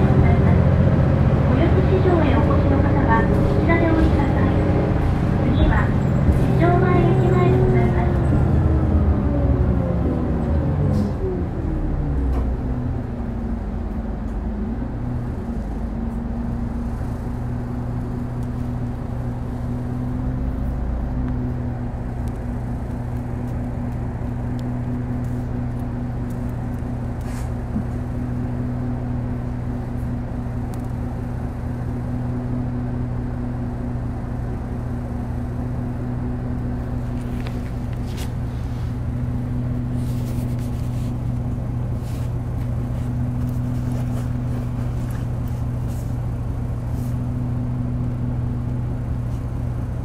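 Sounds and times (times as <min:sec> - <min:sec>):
bus diesel engine idling: 0:00.0 - 0:50.0.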